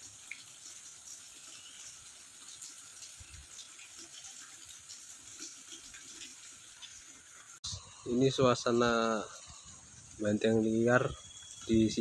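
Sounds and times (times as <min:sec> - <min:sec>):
faint high hiss: 0:07.6 - 0:12.0.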